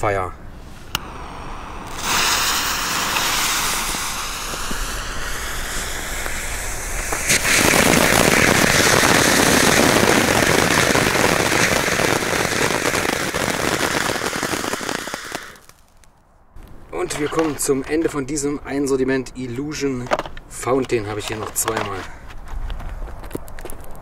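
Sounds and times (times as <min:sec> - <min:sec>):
firework fountains hissing and crackling: 0:00.8 - 0:16.0.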